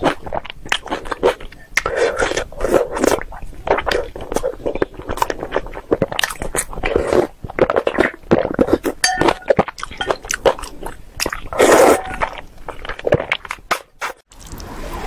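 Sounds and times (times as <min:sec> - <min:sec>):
wet chewing: 0:00.0 - 0:14.6
person slurping noodles: 0:00.1 - 0:09.0, 0:09.9 - 0:14.6
spoon clinking on bowl: 0:09.0 - 0:10.2.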